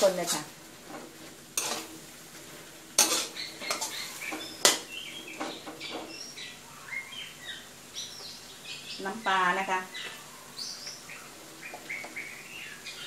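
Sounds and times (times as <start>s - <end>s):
metal spatula scraping a wok: 0.0s - 6.1s
birds chirping: 3.0s - 13.0s.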